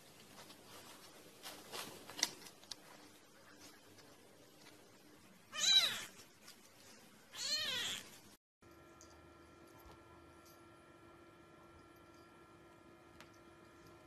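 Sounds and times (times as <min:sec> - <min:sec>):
faint clicks and rustles: 0:00.0 - 0:05.4, 0:06.1 - 0:07.3
cat meowing: 0:05.5 - 0:06.2, 0:07.4 - 0:08.1.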